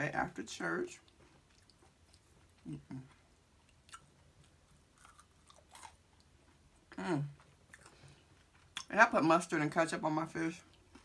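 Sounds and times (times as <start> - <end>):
chewing food: 1.0 - 9.0.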